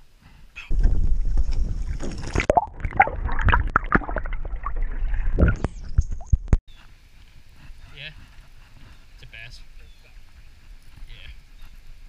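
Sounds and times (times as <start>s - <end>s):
water splashes: 0.7s - 6.6s.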